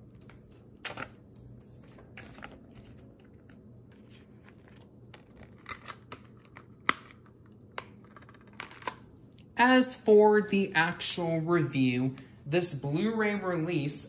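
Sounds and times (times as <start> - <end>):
plastic wrapper crinkling: 0.0 - 9.5.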